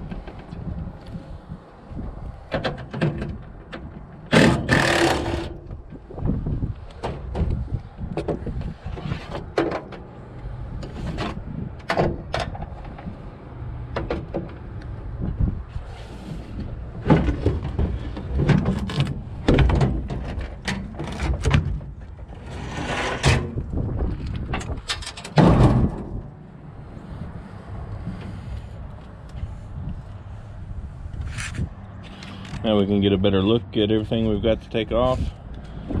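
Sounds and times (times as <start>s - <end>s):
metal panels knocking and clanking: 2.5s - 5.6s, 17.0s - 26.4s
cordless power tool: 4.4s - 5.5s.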